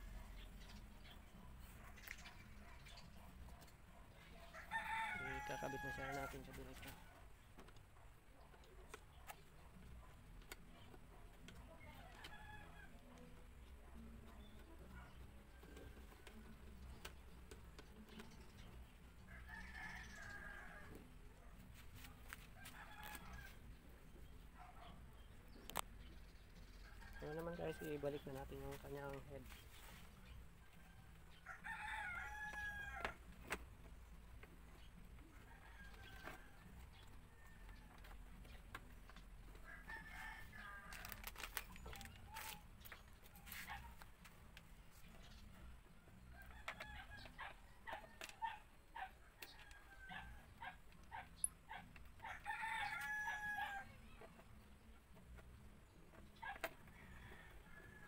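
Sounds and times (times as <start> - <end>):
rooster crowing: 4.5 - 6.3, 31.4 - 33.2, 52.3 - 53.9.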